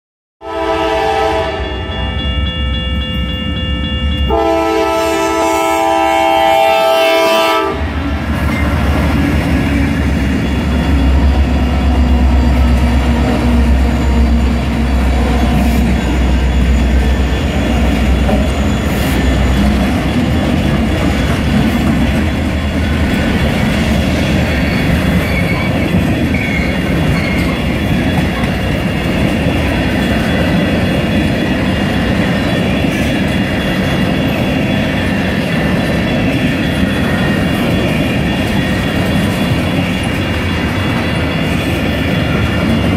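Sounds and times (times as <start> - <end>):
locomotive horn chord: 0.4 - 2.2, 4.3 - 7.9
diesel locomotives rumbling: 0.5 - 42.9
freight cars clickety-clack: 8.0 - 42.9.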